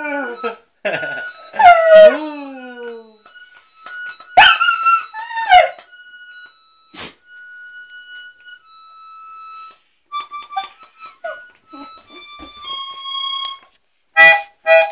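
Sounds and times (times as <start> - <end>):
puppy howling: 0.0 - 3.2, 4.4 - 5.9
held instrument notes: 0.0 - 14.9.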